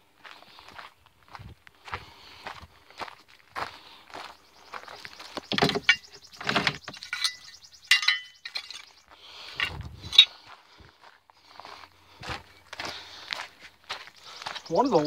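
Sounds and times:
footsteps on gravel: 0.2s - 7.3s, 7.9s - 15.0s
short metallic clinks: 5.5s - 9.0s.

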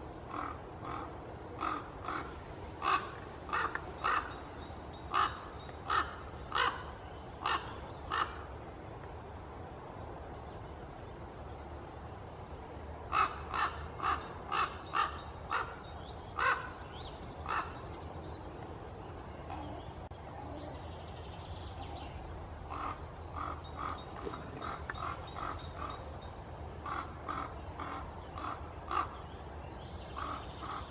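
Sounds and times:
raven calling: 0.3s - 8.5s, 13.1s - 16.8s, 17.4s - 17.9s, 22.7s - 26.1s, 26.8s - 29.2s, 30.2s - 30.9s.

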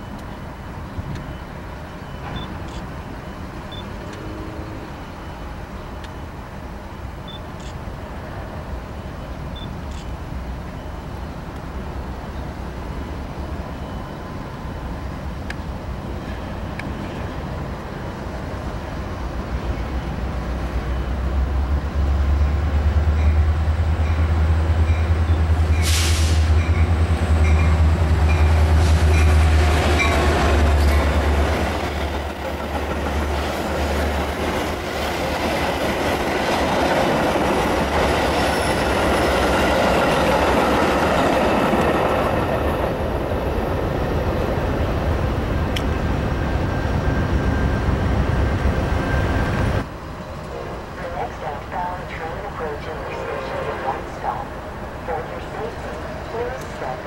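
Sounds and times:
diesel train engine rumble: 0.0s - 57.0s
train wheels rolling: 22.0s - 50.5s
short hiss: 25.8s - 26.5s.

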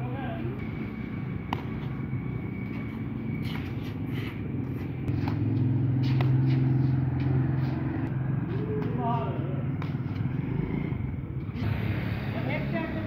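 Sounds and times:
racquet hitting shuttlecock: 1.5s - 1.8s, 5.1s - 7.7s, 9.7s - 10.3s.

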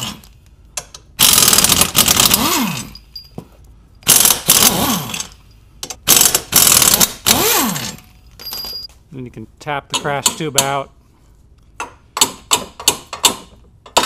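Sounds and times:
impact wrench hammering: 4.0s - 8.8s, 9.9s - 10.8s, 11.8s - 14.0s.

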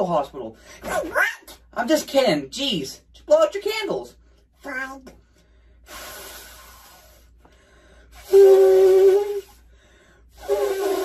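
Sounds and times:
person blowing hard: 5.8s - 7.4s, 8.0s - 11.0s.

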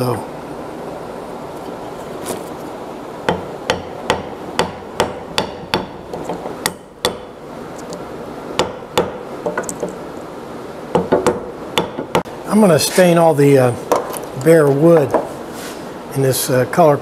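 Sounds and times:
hammer tapping metal punch: 3.3s - 8.0s, 8.6s - 10.0s, 10.9s - 12.3s.

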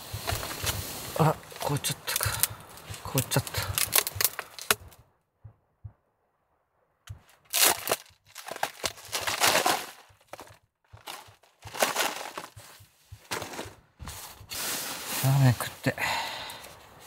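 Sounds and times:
plastic bottle crinkling: 0.0s - 5.0s, 7.4s - 15.7s
slushy drink crunching: 0.1s - 5.0s, 7.5s - 16.6s.

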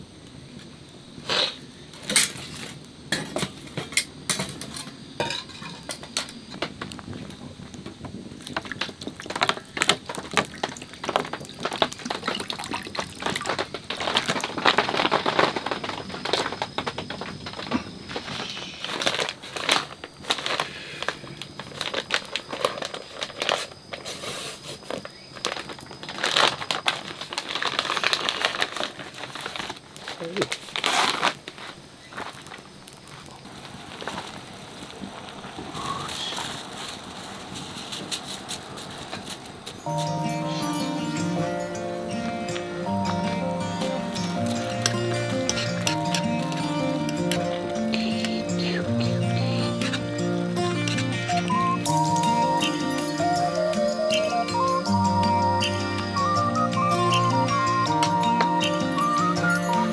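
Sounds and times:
fire crackling: 0.0s - 59.9s
sizzling: 0.0s - 59.9s
metal utensil scraping in pan: 4.4s - 6.0s.

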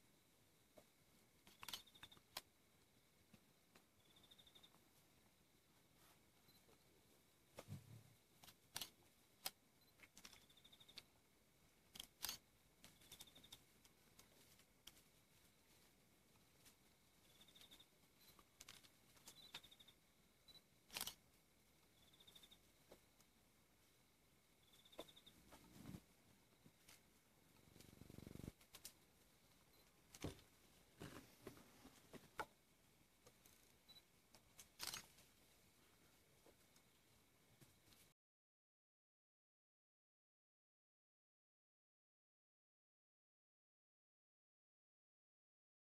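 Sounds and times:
faint short rustles and clicks: 33.3s - 35.4s.

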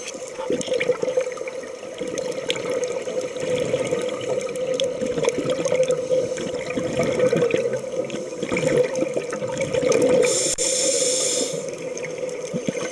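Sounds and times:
underwater bubbling and crackling: 0.0s - 12.9s
diver breathing through regulator: 10.2s - 11.8s
high hiss: 10.2s - 11.8s.

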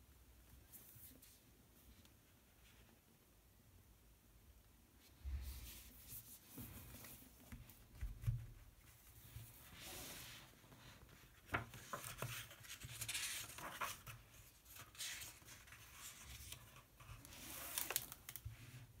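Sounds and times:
paper pages turning: 9.7s - 18.8s.

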